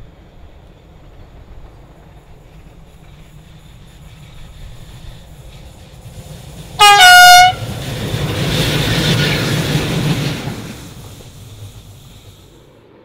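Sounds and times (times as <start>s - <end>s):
train rumbling past: 0.0s - 13.0s
locomotive horn blast: 6.8s - 7.8s.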